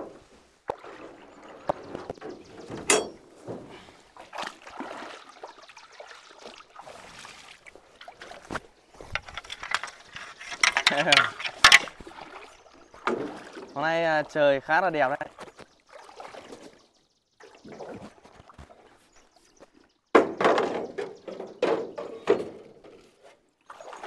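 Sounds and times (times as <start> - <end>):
water splashing around boat: 0.0 - 24.0
knocks on boat: 20.2 - 22.6.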